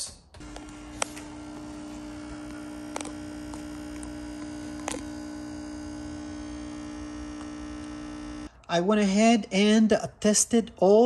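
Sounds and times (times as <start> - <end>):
amplifier mains hum: 0.0 - 8.6.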